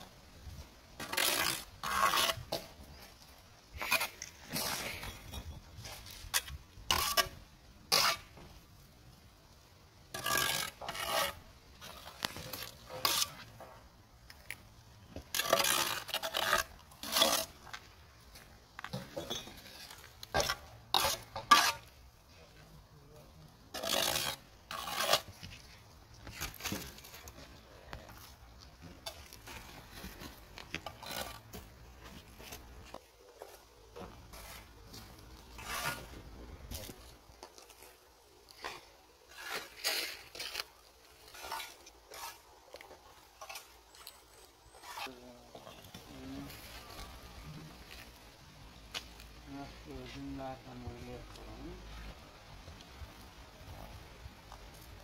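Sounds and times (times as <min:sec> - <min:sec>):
trowel scraping mortar: 0:01.0 - 0:08.4, 0:10.1 - 0:13.8, 0:14.5 - 0:17.9, 0:18.9 - 0:22.0, 0:23.7 - 0:48.1.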